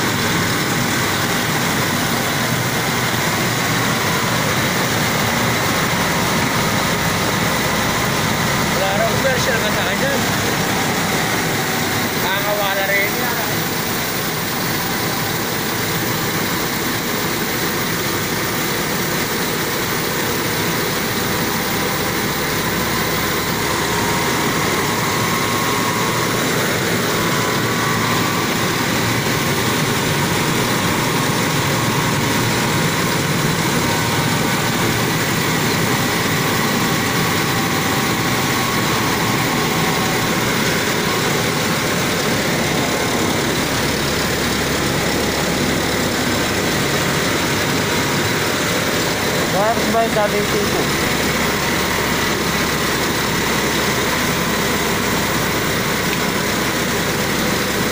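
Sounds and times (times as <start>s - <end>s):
rice mill machinery droning: 0.0s - 57.9s.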